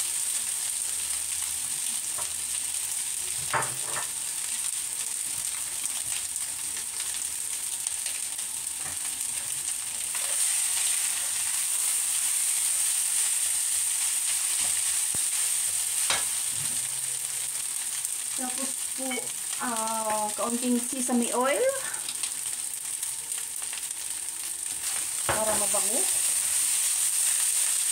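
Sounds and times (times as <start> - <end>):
rice sizzling in a wok: 0.0 - 27.9
spatula stirring in wok: 8.8 - 16.9.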